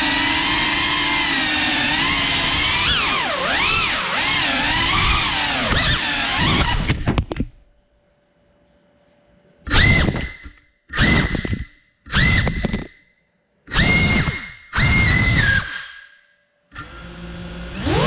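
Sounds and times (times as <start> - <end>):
drone motors whining: 0.0 - 7.1, 9.7 - 13.0, 13.7 - 16.2, 16.8 - 18.0
faint hum: 7.0 - 13.7.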